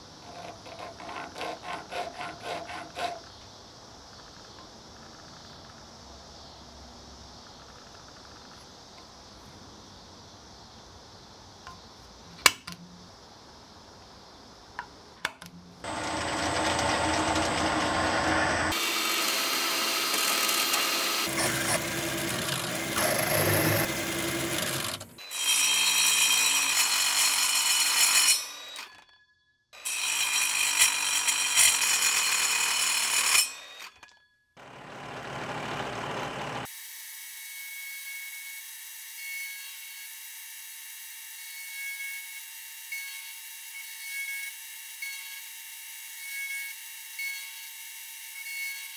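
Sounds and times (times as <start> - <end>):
drill cutting into steel: 15.8 - 29.0, 29.8 - 34.1
milling machine running: 15.9 - 25.0.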